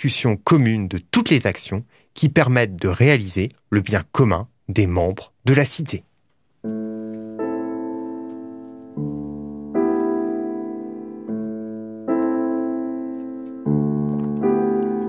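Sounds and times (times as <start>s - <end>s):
slow piano chords: 6.6s - 15.0s.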